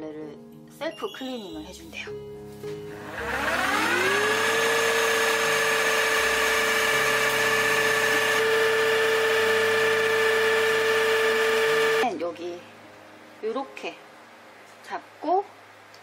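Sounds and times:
floor cleaner motor whine: 2.6s - 12.0s.

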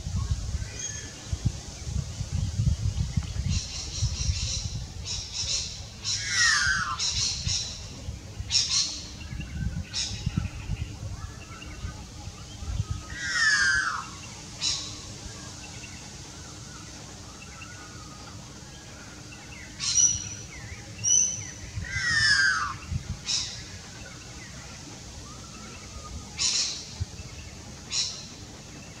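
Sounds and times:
magpie calling: 13.2s - 14.7s.

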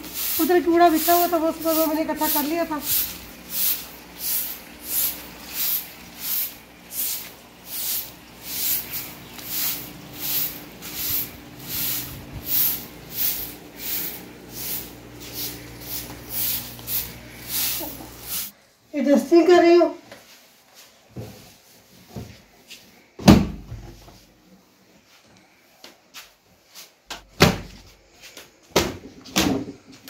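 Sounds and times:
faint steady hum: 0.0s - 19.1s.

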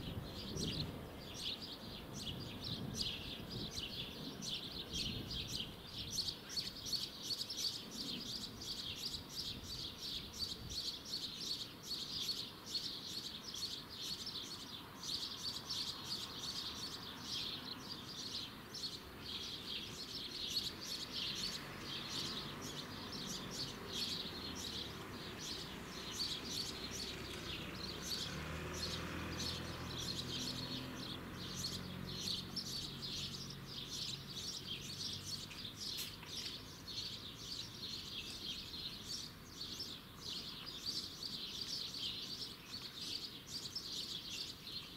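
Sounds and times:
birds chirping: 0.0s - 44.9s
low engine hum: 20.7s - 39.5s.

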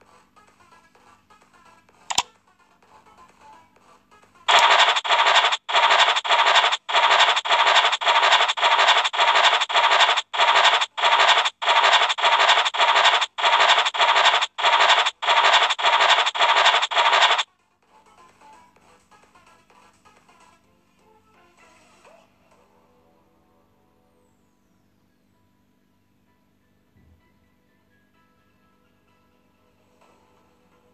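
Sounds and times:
short scratchy swishes: 4.5s - 17.4s.

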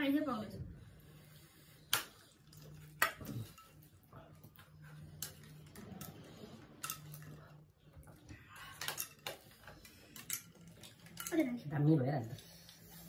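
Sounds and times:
cutlery and dishes clinking: 2.9s - 4.0s, 5.2s - 7.5s.

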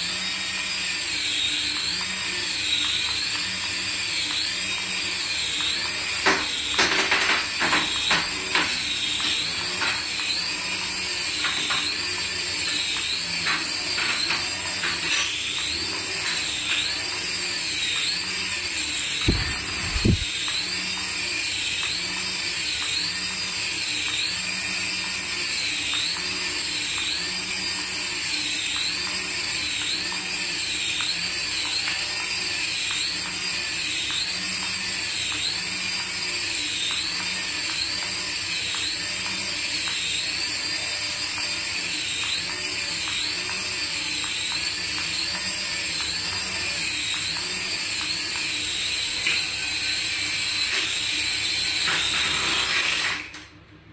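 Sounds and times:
toy helicopter motor whine: 0.0s - 53.5s.

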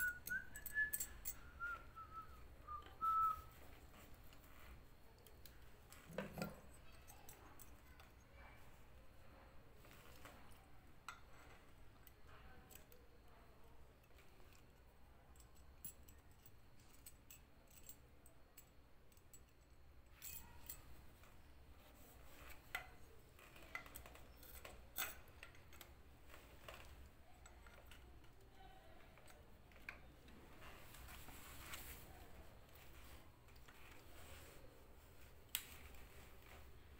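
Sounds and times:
sharp metal clinks: 0.0s - 1.8s.

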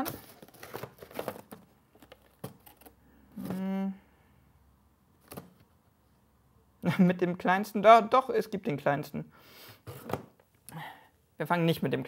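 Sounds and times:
hands rummaging among boxes: 0.0s - 3.6s
man's hesitation sound: 3.4s - 4.0s.

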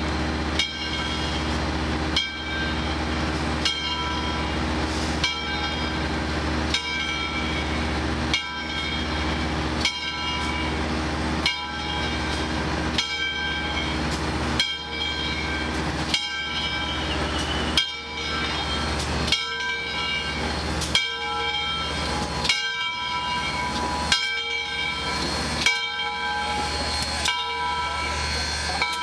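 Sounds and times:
locomotive bell clanging: 0.0s - 29.0s
low rumble of moving train: 0.0s - 29.0s.

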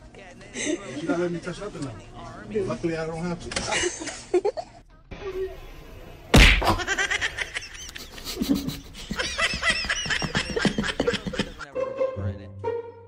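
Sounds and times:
loud slap: 6.3s - 6.9s.

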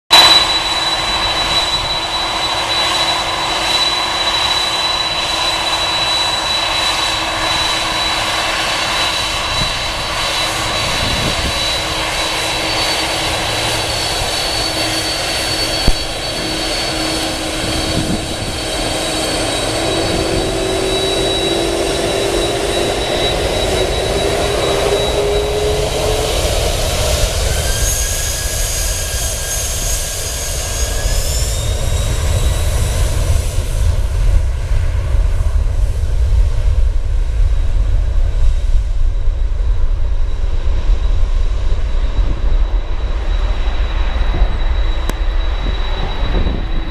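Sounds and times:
jet engines whining: 0.1s - 46.9s
engines spooling up: 0.2s - 32.6s.

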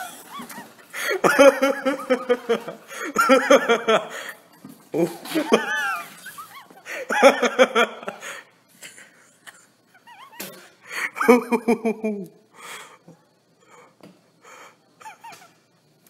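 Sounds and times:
high-pitched squealing giggle: 0.0s - 2.8s, 4.2s - 7.4s, 9.9s - 10.8s, 15.0s - 15.6s
people laughing: 0.0s - 12.3s.

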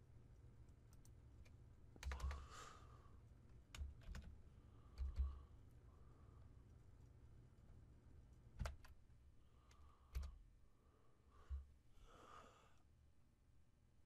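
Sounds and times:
low room hum: 0.0s - 14.0s
computer mouse clicks: 0.7s - 2.4s, 3.5s - 5.4s, 8.3s - 9.0s, 9.6s - 10.4s.

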